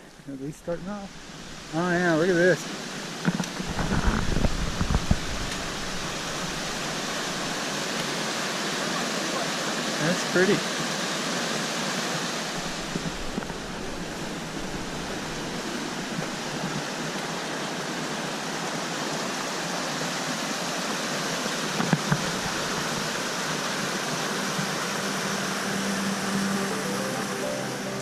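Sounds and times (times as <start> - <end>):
stream rushing over boulders: 0.0 - 28.0
music: 24.9 - 28.0.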